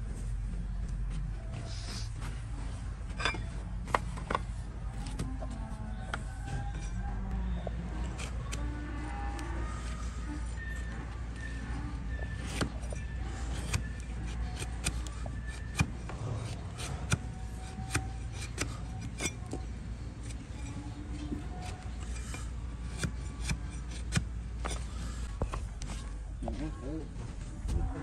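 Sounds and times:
hoof blade cracking and scraping horn: 0:06.6 - 0:10.7, 0:11.4 - 0:25.4.

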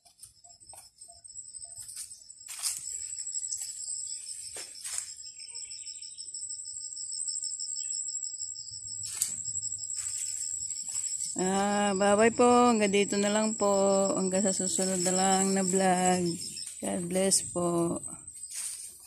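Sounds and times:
insects trilling: 0:00.0 - 0:19.0
leaves rustling: 0:02.5 - 0:03.8, 0:09.0 - 0:11.4, 0:14.5 - 0:17.4, 0:18.4 - 0:19.0.

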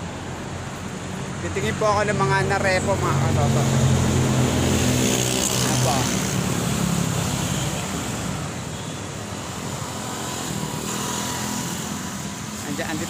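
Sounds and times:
traffic noise: 0:00.0 - 0:13.0
vehicle engine passing: 0:01.6 - 0:07.6.

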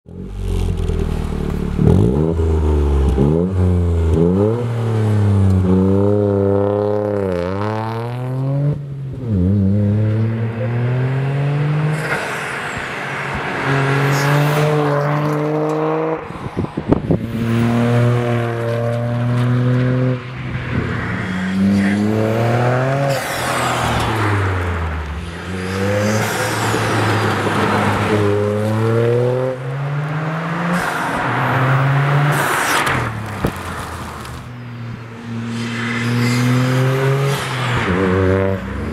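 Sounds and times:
car engine accelerating through gears: 0:00.3 - 0:12.3.

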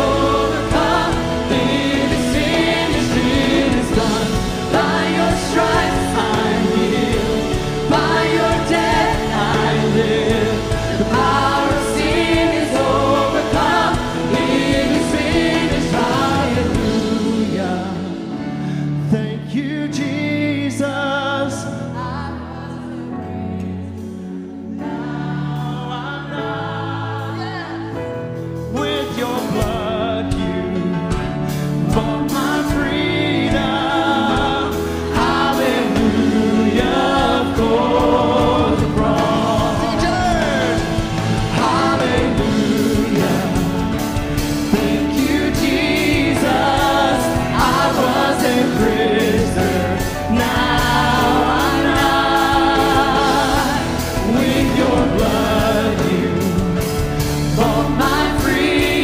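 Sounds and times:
band playing: 0:00.0 - 0:22.2, 0:22.8 - 0:59.0
voices singing together: 0:00.0 - 0:59.0.

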